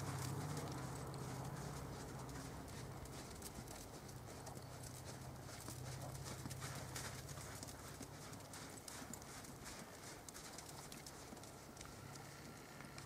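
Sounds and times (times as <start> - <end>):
faint low hum: 0.0 - 13.0
horse hoofbeats on soft dirt: 0.0 - 13.0.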